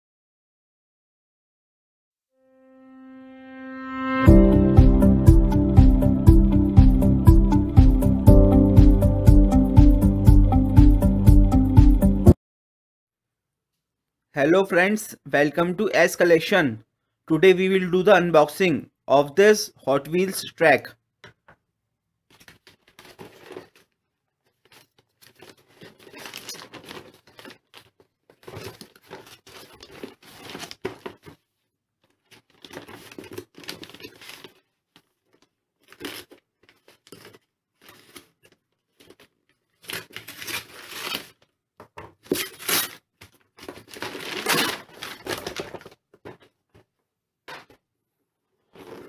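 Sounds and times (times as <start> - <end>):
scissors cutting paper bag: 22.3 - 31.4, 32.1 - 46.4, 48.7 - 49.0
paper tearing and crinkling: 22.3 - 46.6, 48.7 - 49.0.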